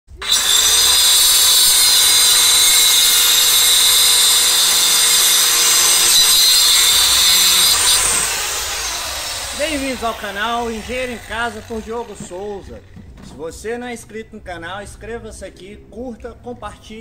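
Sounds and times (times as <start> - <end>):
circular saw cutting wood: 0.1 - 12.9.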